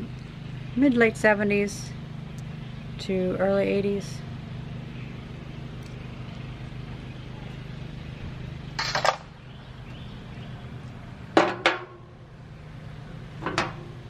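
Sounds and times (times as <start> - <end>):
steady low hum: 0.0 - 14.0
sharp metallic knocks: 11.4 - 12.1.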